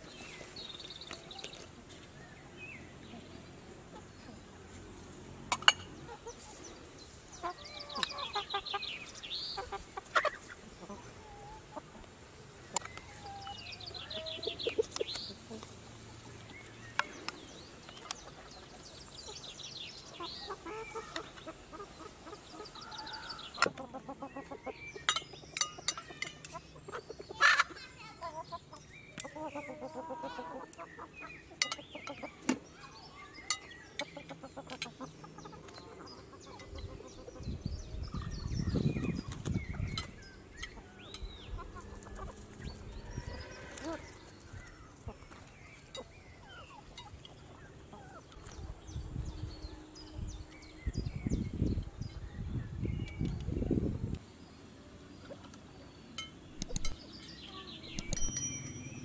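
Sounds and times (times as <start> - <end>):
chickens clucking: 2.9 - 52.1, 53.2 - 57.0
sharp clicks and knocks: 56.6 - 57.0, 58.0 - 58.4.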